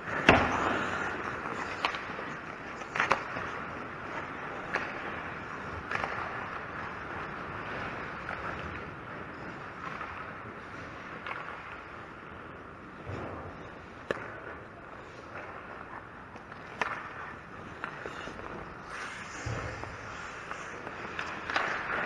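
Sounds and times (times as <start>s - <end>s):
hockey sticks and puck knocking: 0.0s - 7.2s, 11.2s - 11.9s, 13.0s - 22.0s
skate blades scraping on ice: 0.0s - 22.0s.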